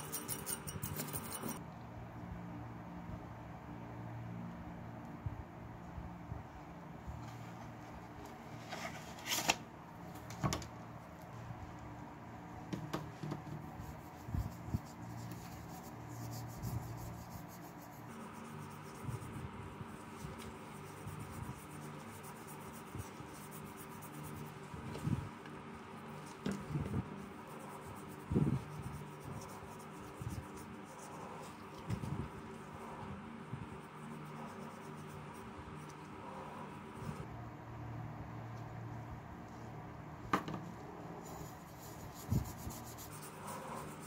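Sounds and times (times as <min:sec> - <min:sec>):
cloth rubbing on metal: 0:00.0 - 0:01.6
steady low hum: 0:09.8 - 0:44.0.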